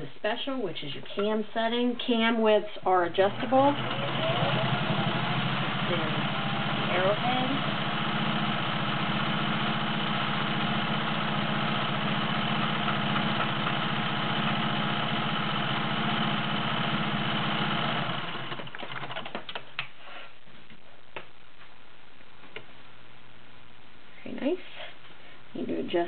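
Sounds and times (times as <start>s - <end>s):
sewing machine running: 3.2s - 19.4s.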